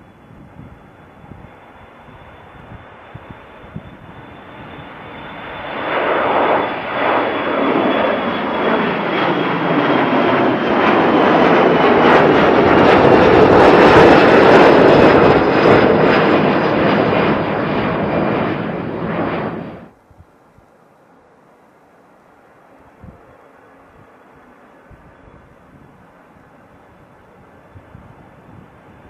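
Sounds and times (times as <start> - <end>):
high fan whine falling in pitch: 0.0 - 20.0
jet engines at takeoff thrust: 0.0 - 20.0, 22.4 - 29.0.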